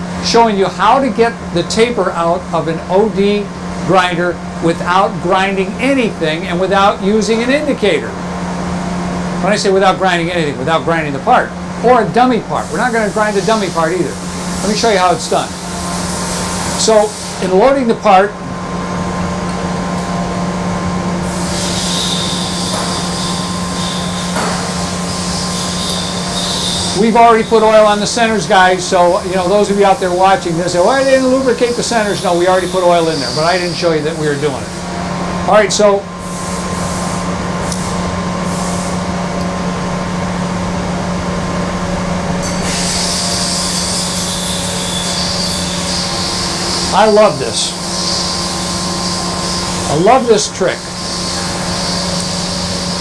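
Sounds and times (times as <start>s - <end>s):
grinder humming: 0.0s - 39.4s, 41.8s - 53.0s.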